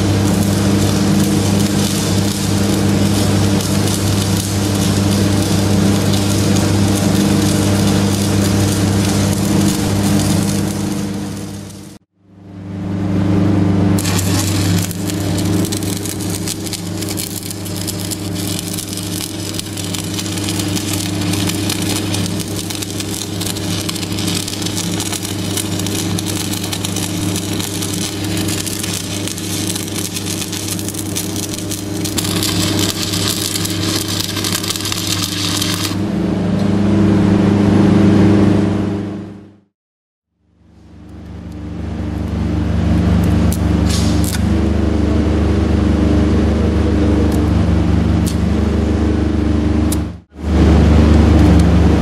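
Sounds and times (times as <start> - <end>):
diesel engine humming: 0.0 - 12.0
welding arc crackling: 0.0 - 12.1, 13.9 - 36.1, 41.1 - 45.0, 47.0 - 52.0.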